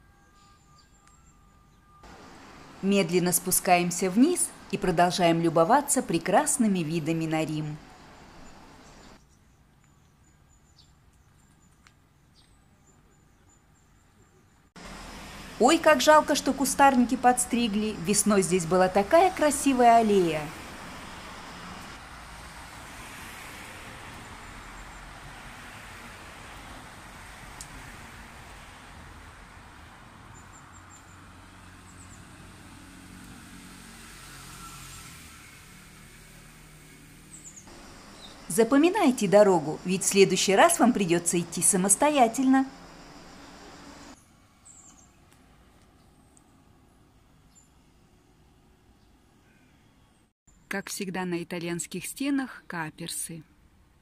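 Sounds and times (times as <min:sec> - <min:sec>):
road traffic hum: 0:02.0 - 0:09.2, 0:14.8 - 0:50.6.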